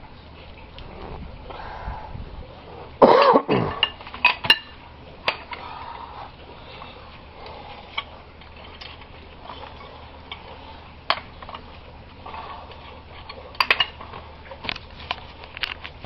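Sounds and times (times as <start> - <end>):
loud cough: 3.0 - 3.8.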